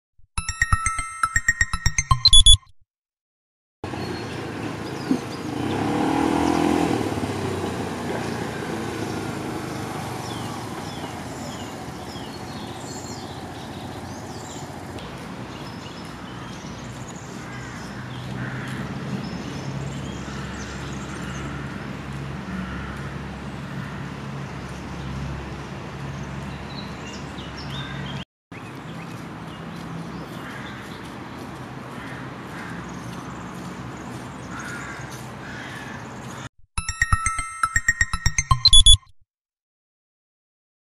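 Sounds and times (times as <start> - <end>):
motor vehicle passing: 3.9 - 28.1
low traffic hum: 3.9 - 36.5.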